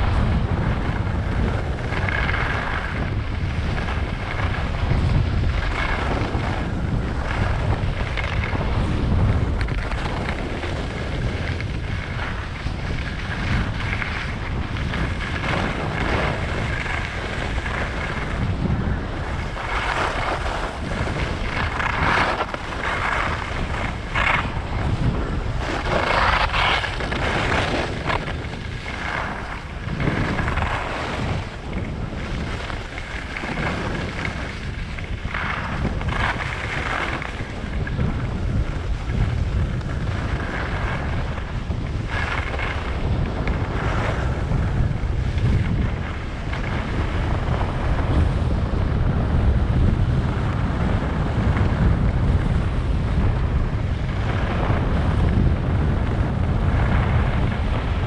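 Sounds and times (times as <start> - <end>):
skis scraping on snow: 0.0 - 58.0
wind buffeting microphone: 0.0 - 58.0.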